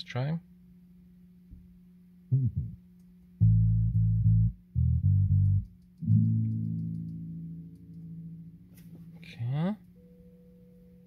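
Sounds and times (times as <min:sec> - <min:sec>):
bass guitar notes through car speakers: 0:02.3 - 0:02.8, 0:03.4 - 0:09.7.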